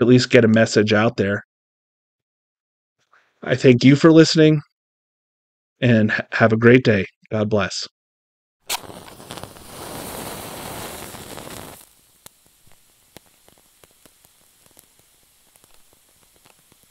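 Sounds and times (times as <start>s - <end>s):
torch flame crackling: 8.6s - 16.9s
wick catching with rushing hiss: 8.7s - 16.9s.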